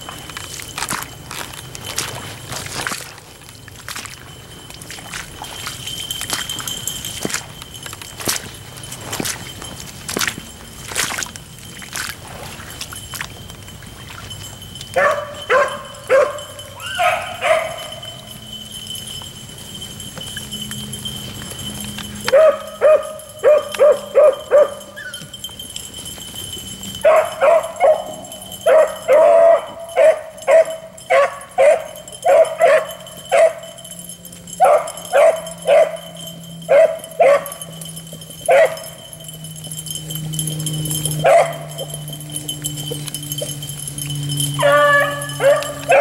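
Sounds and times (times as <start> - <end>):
dogs baying: 14.4 - 46.0.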